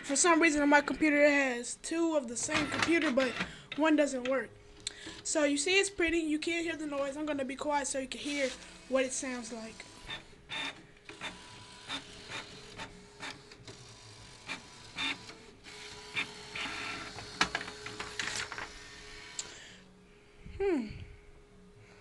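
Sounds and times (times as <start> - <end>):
printer steady hum: 8.1 - 19.9
printer clicking and clacking: 16.1 - 18.7
printer clattering: 16.1 - 18.8.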